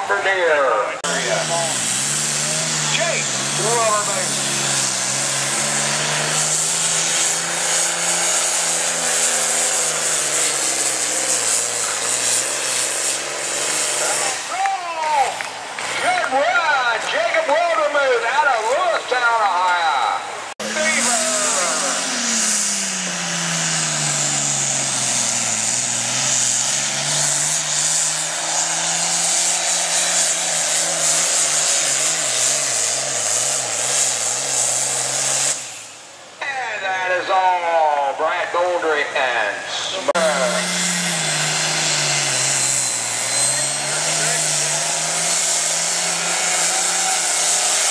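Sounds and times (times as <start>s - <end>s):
tractor diesel engine under load: 0.0s - 47.9s
hiss and rush: 23.7s - 36.2s.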